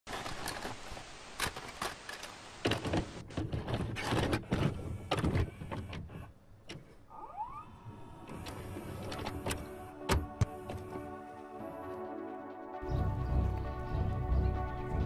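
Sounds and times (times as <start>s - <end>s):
tape static hiss: 0.1s - 3.3s
tape mechanism clicks and clunks: 7.8s - 10.9s.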